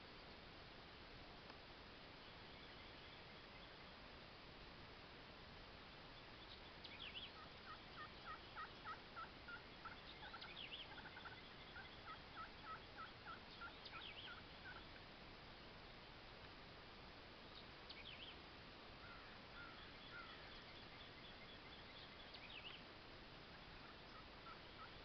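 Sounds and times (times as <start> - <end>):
faint turkey yelps: 6.5 - 14.9, 19.0 - 20.7, 23.6 - 25.0.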